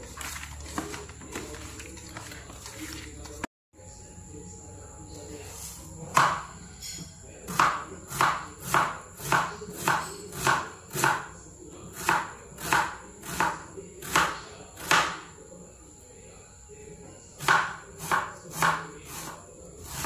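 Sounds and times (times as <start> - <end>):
knife slicing onion on cutting board: 7.5 - 11.3, 11.9 - 15.2, 17.4 - 20.0.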